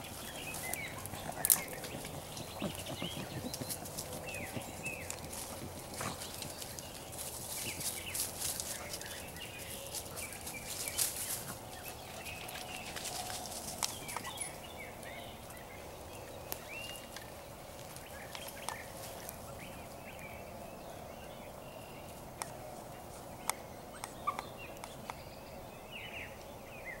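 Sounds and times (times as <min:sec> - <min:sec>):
birds chirping: 0:00.0 - 0:27.0
twigs snapping underfoot: 0:00.5 - 0:02.7, 0:09.9 - 0:14.4.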